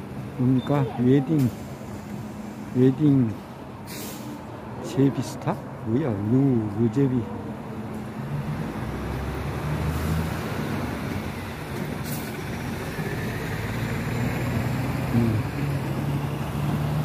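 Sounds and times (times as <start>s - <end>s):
bus diesel engine running: 0.0s - 17.0s
road traffic noise: 0.0s - 17.0s
short air hiss: 3.8s - 4.5s.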